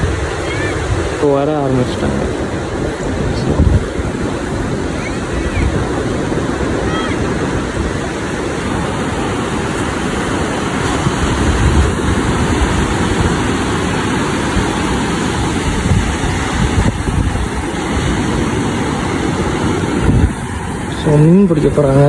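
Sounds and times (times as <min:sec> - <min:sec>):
surf breaking on beach: 0:00.0 - 0:22.0
wind rumbling on microphone: 0:00.0 - 0:22.0.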